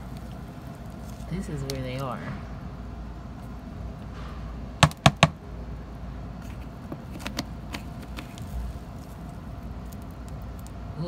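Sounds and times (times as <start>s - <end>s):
low steady city hum: 0.0s - 11.0s.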